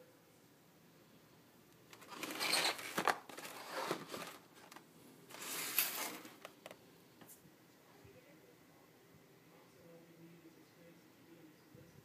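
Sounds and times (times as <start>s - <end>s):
cardboard box rustling and scraping: 2.0s - 6.4s.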